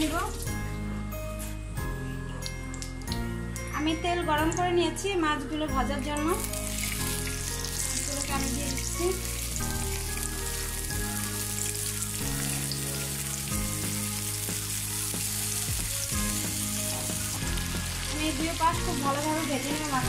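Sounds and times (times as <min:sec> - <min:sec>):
fish sizzling in hot oil: 0:06.4 - 0:20.0.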